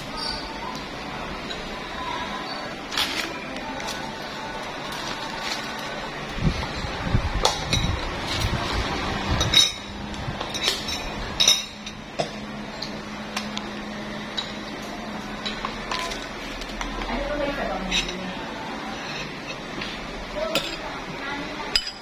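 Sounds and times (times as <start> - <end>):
dishes and cutlery clinking: 1.4 - 1.8, 7.4 - 8.6, 9.4 - 13.5, 14.3 - 20.9, 21.7 - 22.0.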